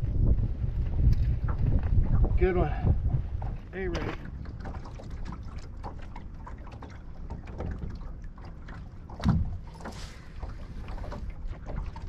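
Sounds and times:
low rumble: 0.0s - 4.4s
waves lapping against boat hull: 0.0s - 12.0s
wind: 0.0s - 12.0s
small splashes and ticks: 3.4s - 12.0s.

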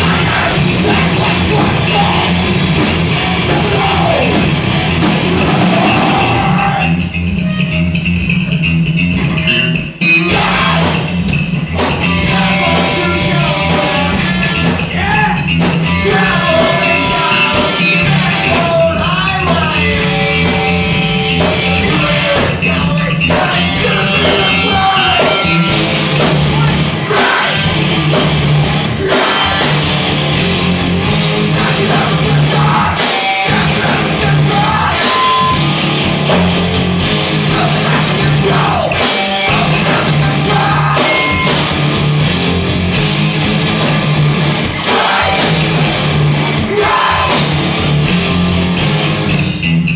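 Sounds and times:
bass guitar: 0.0s - 49.9s
drum kit: 0.0s - 49.9s
electric guitar: 0.0s - 49.9s
person singing into microphone: 15.9s - 20.2s, 21.7s - 25.6s, 26.6s - 27.7s, 31.5s - 35.6s, 37.5s - 41.5s, 44.7s - 45.6s, 46.6s - 47.4s.

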